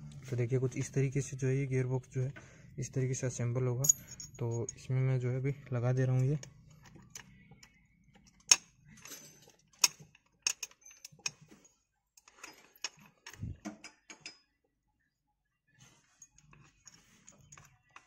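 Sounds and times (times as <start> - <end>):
metal gearbox parts clicking: 6.3 - 11.5.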